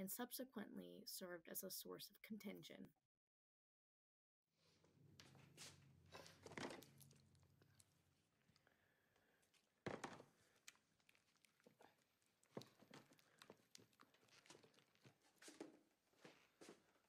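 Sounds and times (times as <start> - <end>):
knocks and scuffs in a room: 4.6 - 7.2, 9.4 - 10.6, 11.6 - 17.0.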